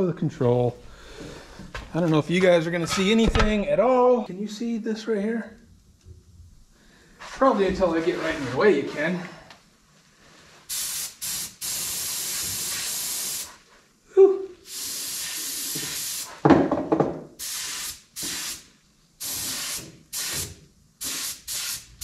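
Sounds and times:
spray gun hissing: 10.7s - 13.6s, 14.7s - 16.4s, 17.4s - 22.0s.

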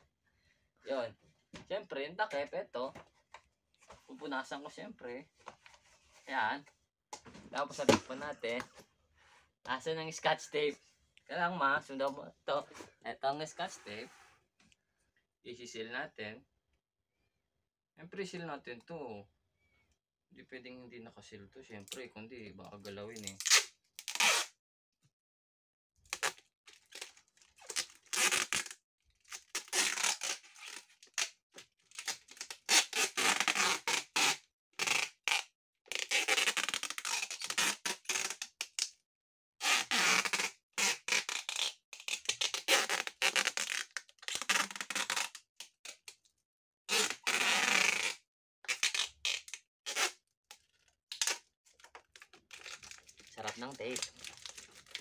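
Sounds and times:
tape ripping off roll: 23.4s - 24.5s, 26.1s - 31.3s, 32.0s - 38.9s, 39.6s - 46.1s, 46.9s - 50.2s.

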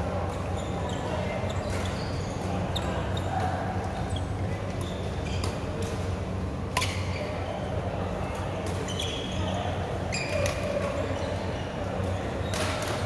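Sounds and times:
shoes squeaking on floor: 0.4s - 3.3s.

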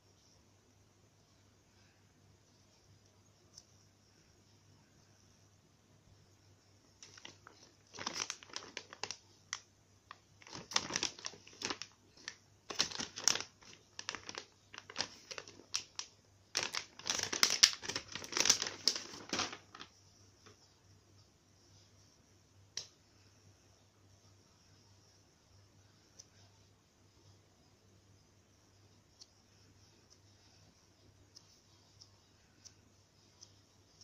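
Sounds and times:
plastic bag crinkling: 7.0s - 19.9s.

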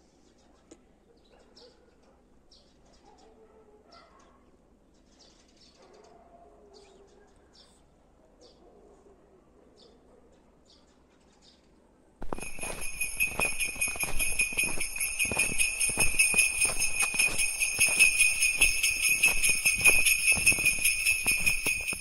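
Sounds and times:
sleigh bells jingling: 12.2s - 22.0s.

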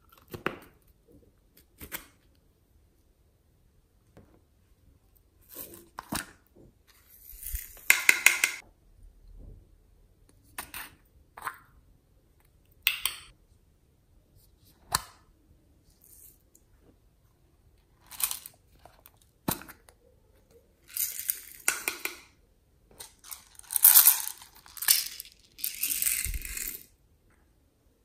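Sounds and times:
plastic containers clicking and tapping: 7.8s - 8.6s, 21.6s - 22.3s.

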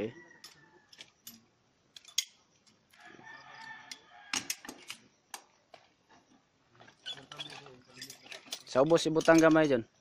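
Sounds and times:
rooster crowing: 0.0s - 1.0s, 2.9s - 4.7s
harness hardware clicking: 7.0s - 9.8s.

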